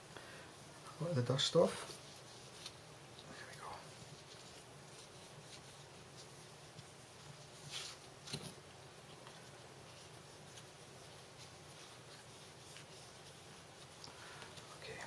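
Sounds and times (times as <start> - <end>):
wipe rubbing on glass screen: 9.4 - 15.0.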